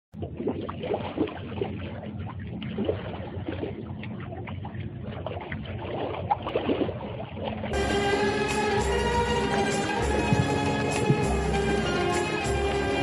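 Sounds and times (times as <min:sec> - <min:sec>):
water lapping against rocks: 0:00.2 - 0:07.8.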